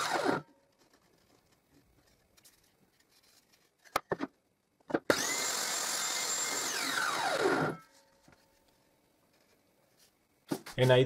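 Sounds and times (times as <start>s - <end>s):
table saw whining: 0.0s - 0.5s, 5.1s - 7.9s.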